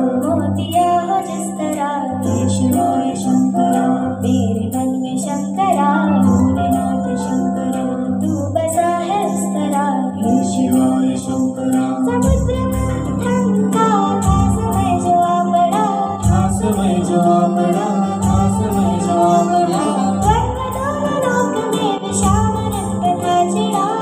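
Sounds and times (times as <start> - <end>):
woman and girl singing: 0.0 - 24.0
steady drone: 11.4 - 24.0
low beat: 12.2 - 15.4, 16.1 - 21.5.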